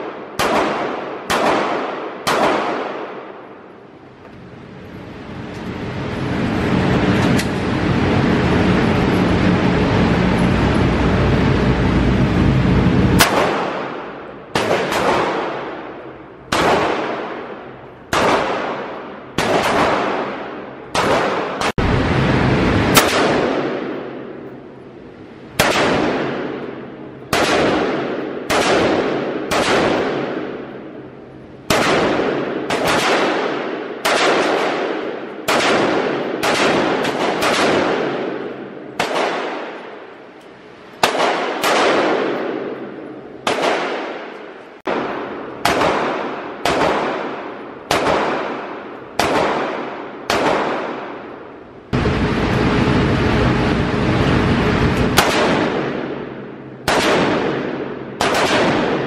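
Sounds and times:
rifle single shots echoing: 0.0s - 3.4s, 13.2s - 21.7s, 27.3s - 30.8s, 31.7s - 40.0s, 41.0s - 51.3s, 55.2s - 59.0s.

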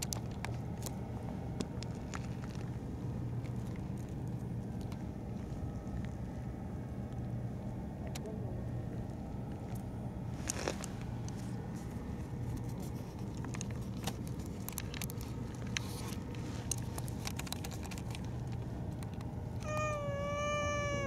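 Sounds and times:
steady low hum: 0.0s - 21.0s
cat meowing: 19.6s - 21.0s.

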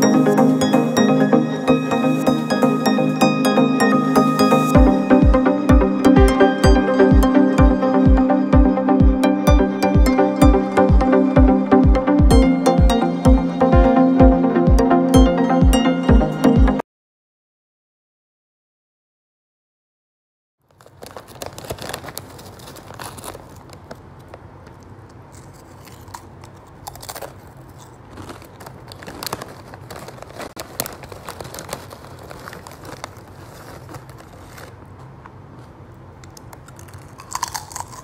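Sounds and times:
foil chip bag crinkling: 20.6s - 38.0s
chips crunching: 20.7s - 38.0s.

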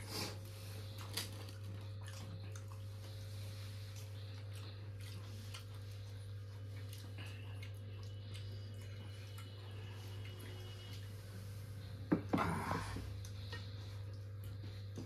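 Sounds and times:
eating clicks and smacks: 6.7s - 10.5s.

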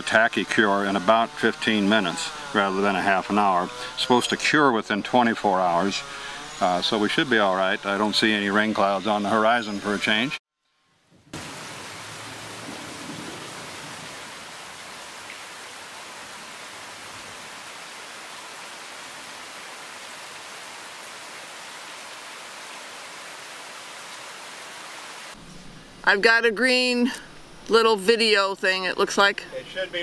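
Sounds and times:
heavy rain: 11.3s - 25.4s.

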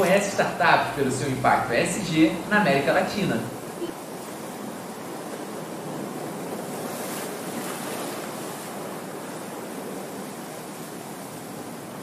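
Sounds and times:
steady rushing noise: 0.0s - 6.7s.

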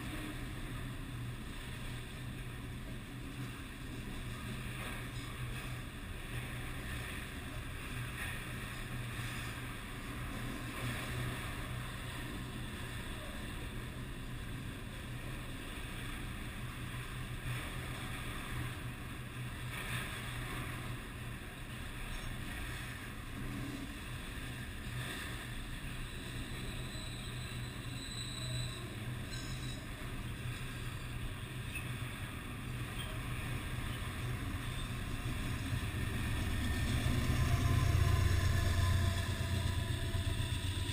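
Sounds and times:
train wheels rumbling on rails: 21.8s - 40.9s
diesel locomotive approaching: 32.9s - 40.9s.

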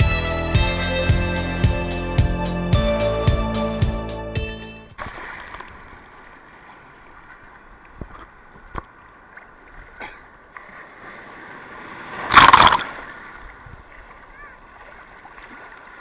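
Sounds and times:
wave breaking in rush of water: 5.0s - 7.5s, 10.6s - 16.0s
surf water sloshing and splashing: 5.0s - 16.0s.

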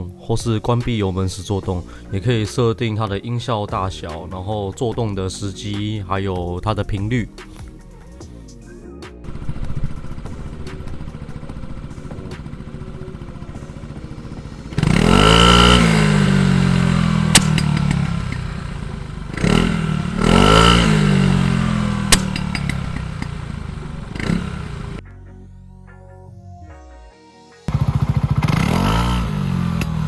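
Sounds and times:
scooter engine idling and revving: 9.2s - 25.0s, 27.7s - 30.0s
exhaust backfire pop: 14.3s - 25.0s.

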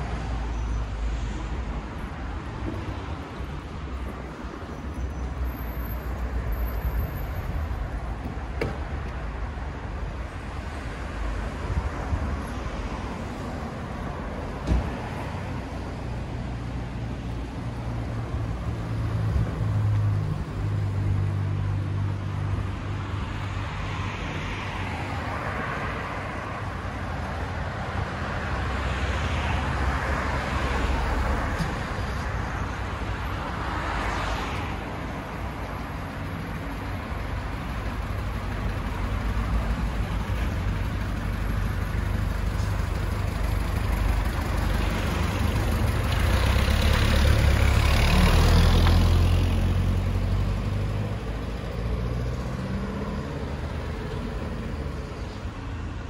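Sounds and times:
cars passing: 0.0s - 56.0s.

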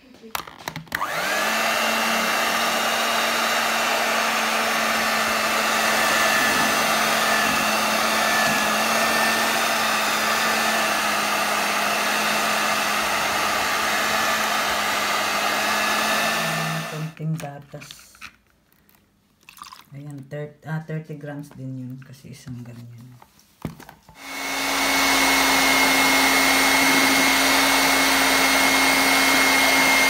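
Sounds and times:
electric hand mixer whine: 0.9s - 17.2s, 24.2s - 30.0s.

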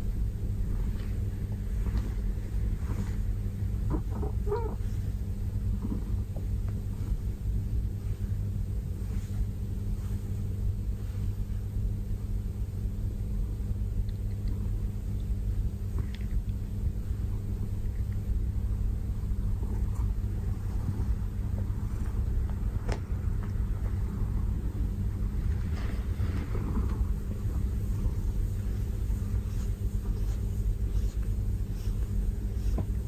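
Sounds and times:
cat purring: 0.6s - 12.4s.

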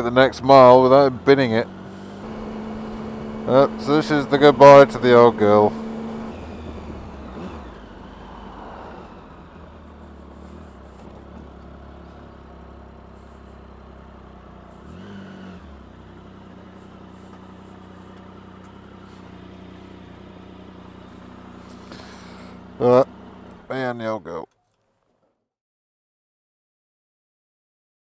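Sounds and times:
motorcycle engine running slowly: 0.0s - 25.3s.

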